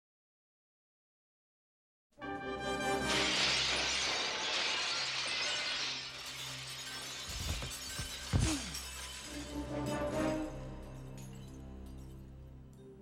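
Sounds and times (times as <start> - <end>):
orchestral music: 2.2 - 3.8, 8.6 - 13.0
glass pane shattering: 2.8 - 10.4.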